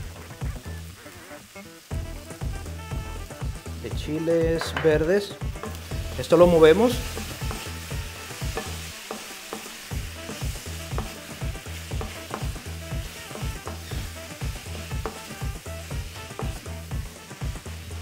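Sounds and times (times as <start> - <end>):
food sizzling in frying pan: 0.0 - 18.0
utensil scraping pan: 5.6 - 16.5.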